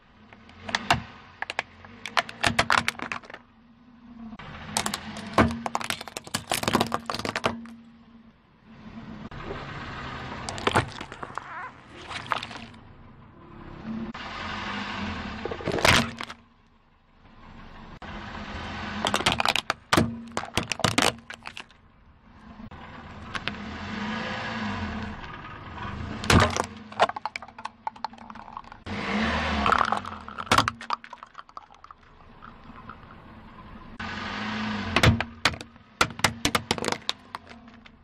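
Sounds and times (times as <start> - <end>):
tyre noise on gritty asphalt: 0.0 - 16.6, 17.8 - 38.0
low engine hum: 0.0 - 38.0
plastic cracking under tyre: 0.4 - 3.4, 4.8 - 7.8, 10.5 - 12.8, 15.4 - 16.4, 19.0 - 21.8, 26.2 - 33.1, 35.0 - 38.0.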